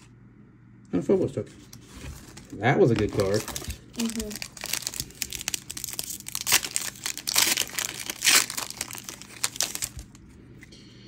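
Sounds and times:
foil wrapper crinkling: 1.7 - 10.3.

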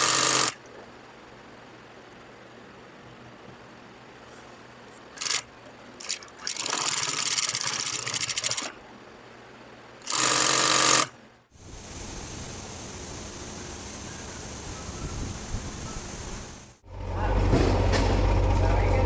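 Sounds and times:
sewing machine stitching: 0.0 - 0.6, 5.2 - 8.7, 10.0 - 11.1
room noise hiss: 0.0 - 16.9.

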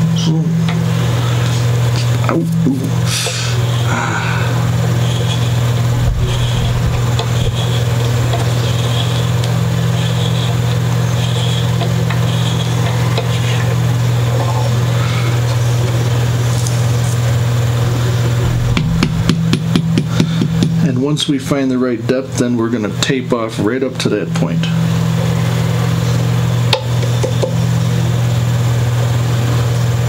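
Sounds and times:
steady low hum: 0.0 - 29.2
hand reamer scraping wood: 4.9 - 18.9.

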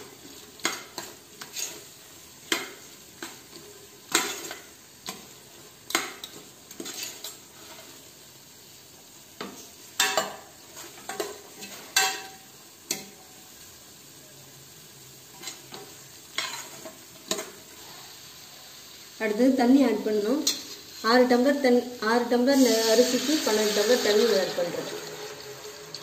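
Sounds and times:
paste sizzling: 0.0 - 26.0
metal spoon scraping a pot: 0.6 - 1.9, 5.9 - 8.0, 16.4 - 18.0.

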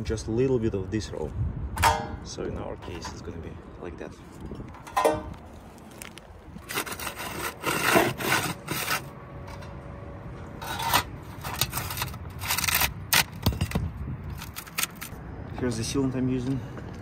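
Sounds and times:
metal flashing scraping on shingles: 4.8 - 9.8, 10.6 - 15.2
pry bar prying up shingles: 6.6 - 9.1.

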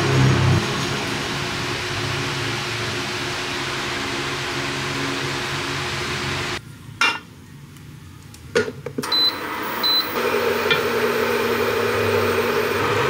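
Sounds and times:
hob humming and hissing: 0.0 - 6.6, 9.4 - 13.0
electric hob beeps: 9.1 - 11.7.

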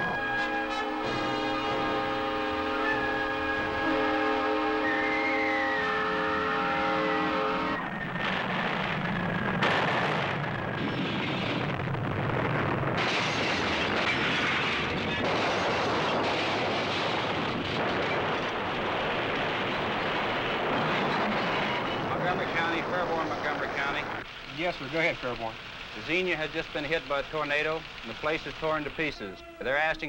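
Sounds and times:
locomotive air horn: 0.0 - 8.0, 29.1 - 30.0
roaring tornado wind: 7.3 - 25.5
sharp crashing burst: 7.8 - 24.4.

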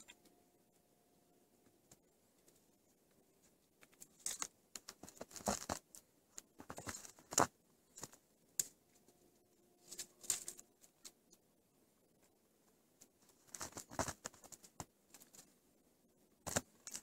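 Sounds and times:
twigs snapping and crunching: 3.8 - 6.0, 9.9 - 11.2, 16.5 - 17.0.

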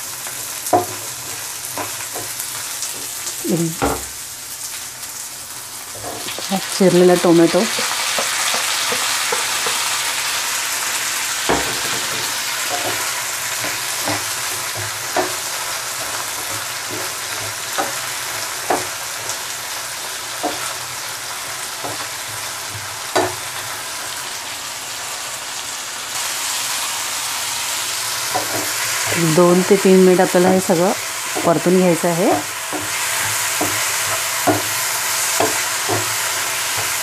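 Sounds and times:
vegetables sizzling in oil: 0.0 - 37.0
spatula scraping pan: 11.5 - 19.4, 32.3 - 37.0.

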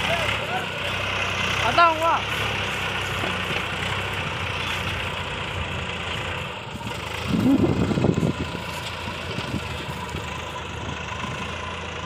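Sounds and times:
tractor diesel engine running: 0.0 - 12.0.

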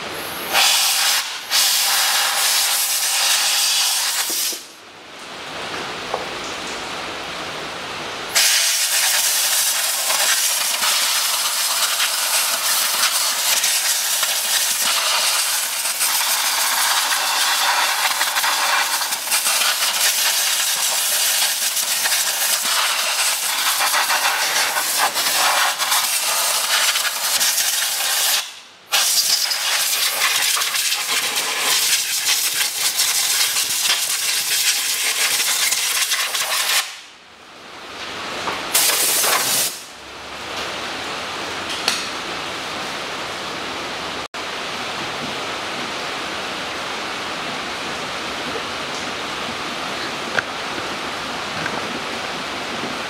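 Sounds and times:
air blow gun hissing: 0.2 - 4.7, 8.3 - 37.1, 38.7 - 39.9.

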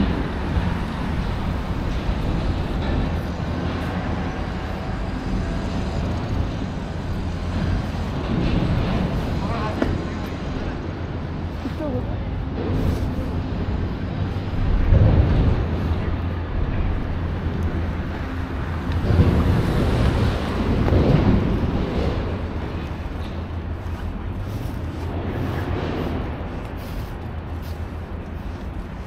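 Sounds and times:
road traffic rumble: 0.0 - 29.0
wind on microphone: 12.2 - 29.0.

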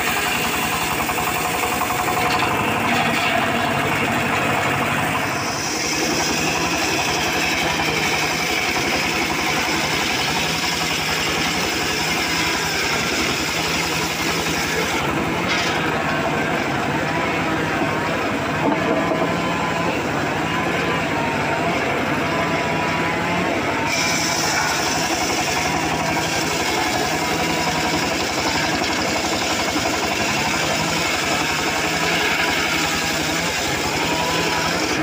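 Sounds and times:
saw blade cutting wood: 0.0 - 22.3, 23.0 - 35.0
saw bench engine running: 0.0 - 35.0.

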